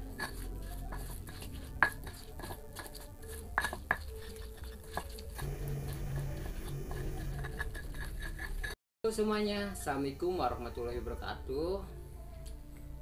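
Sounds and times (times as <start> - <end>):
stone pestle grinding in mortar: 0.0 - 8.8.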